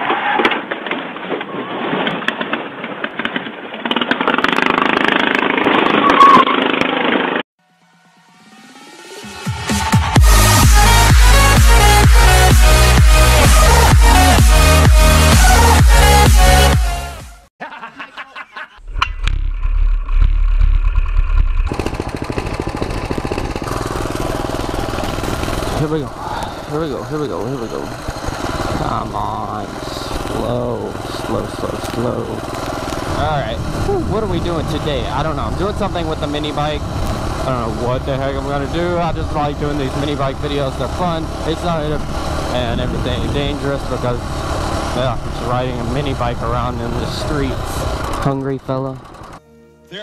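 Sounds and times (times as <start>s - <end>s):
deep low rumble: 18.8s - 27.2s
car engine running hard: 20.9s - 49.4s.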